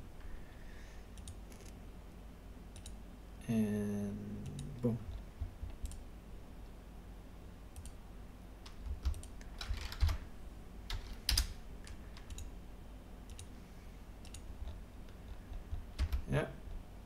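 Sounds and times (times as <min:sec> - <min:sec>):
mouse and keyboard clicks: 0:02.8 - 0:03.0, 0:14.2 - 0:16.2.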